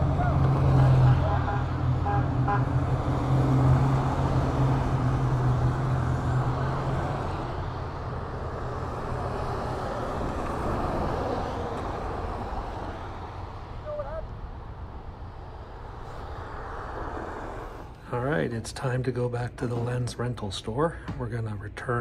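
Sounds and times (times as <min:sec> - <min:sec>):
tyres hissing on wet pavement: 0:15.8 - 0:18.1.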